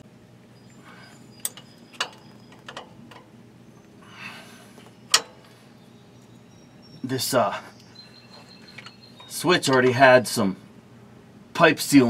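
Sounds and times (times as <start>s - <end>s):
metal clicks and taps: 1.4s - 3.3s.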